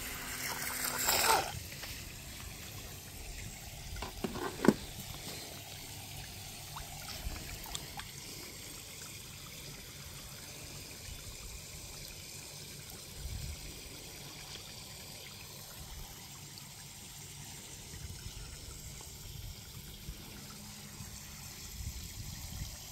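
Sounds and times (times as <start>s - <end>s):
water trickling: 0.0s - 22.9s.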